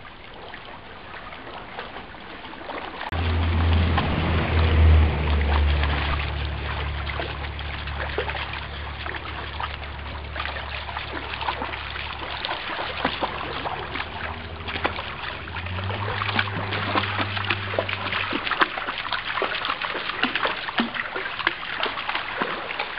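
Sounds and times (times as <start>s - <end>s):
dog splashing through water: 0.0s - 22.9s
river water rippling over stones: 0.0s - 22.9s
low rumble: 3.1s - 12.3s, 12.9s - 18.6s.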